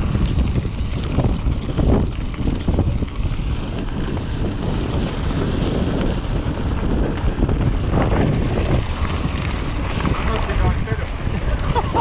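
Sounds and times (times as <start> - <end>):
wind buffeting microphone: 0.0 - 12.0
scattered clicks: 0.1 - 4.6.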